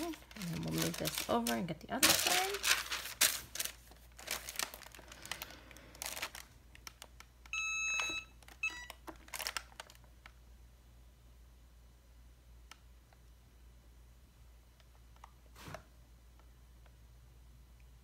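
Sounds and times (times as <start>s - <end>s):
parchment rustling and crinkling: 0.0s - 7.2s, 8.4s - 10.1s
heat press beeps: 7.5s - 9.0s.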